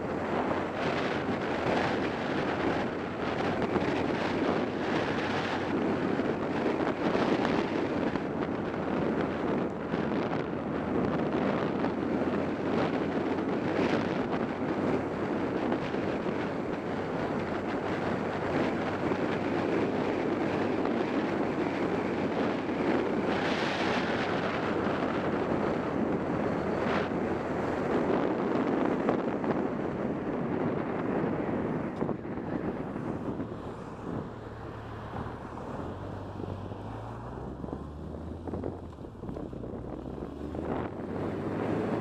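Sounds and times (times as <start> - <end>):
low engine hum: 0.0 - 42.0
wind rush on microphone: 0.0 - 42.0.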